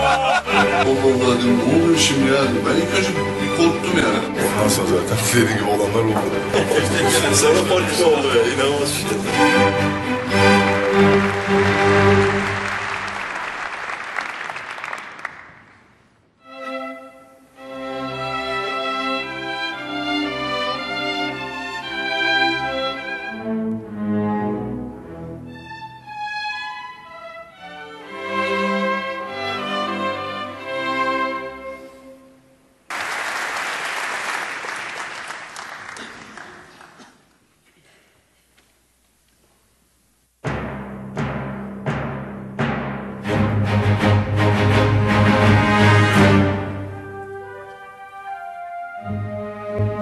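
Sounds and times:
orchestra strings playing: 0.0 - 13.7, 16.4 - 32.6, 40.6 - 50.0
audience applause: 6.4 - 15.9, 32.9 - 37.3.

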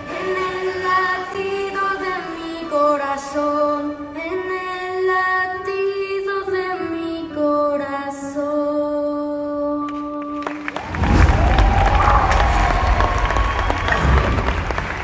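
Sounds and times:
audience applause: 0.0 - 3.1, 10.4 - 15.0
woman singing long notes: 0.0 - 10.6.

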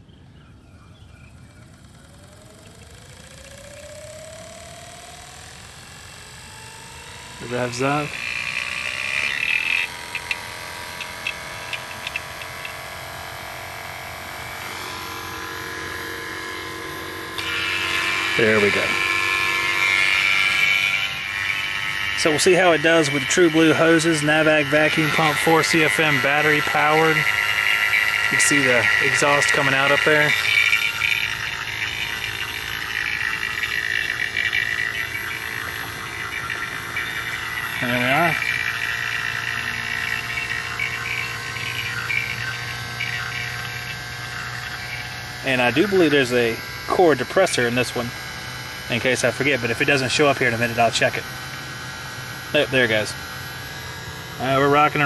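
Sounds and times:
vacuum pump running: 0.0 - 55.0.

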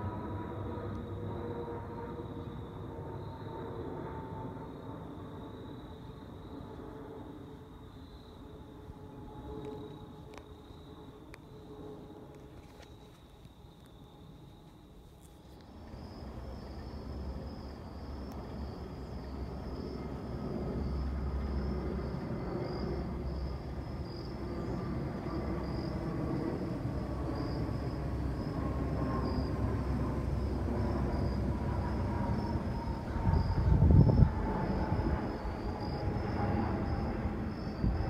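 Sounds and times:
jet engines roaring: 0.0 - 12.7, 15.6 - 38.0
jet engine whine: 0.0 - 38.0.

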